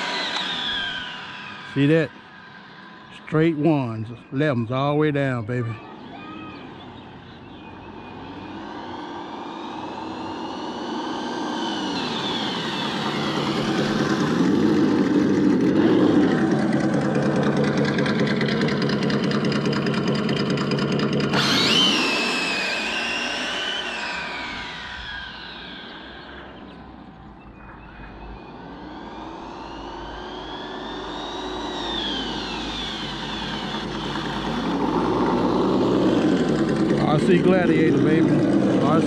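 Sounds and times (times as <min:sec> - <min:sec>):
simulated engine growl: 0:00.0 - 0:39.0
whine of electric motor and gears: 0:00.0 - 0:39.0.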